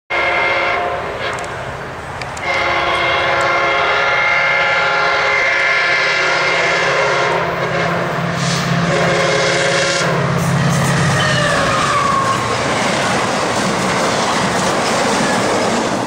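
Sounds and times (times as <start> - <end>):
locomotive horn blast: 0.1 - 1.6, 2.4 - 12.5.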